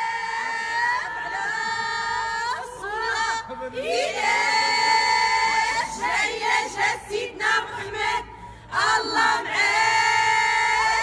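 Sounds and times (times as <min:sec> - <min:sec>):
high voices singing together: 0:00.0 - 0:11.0.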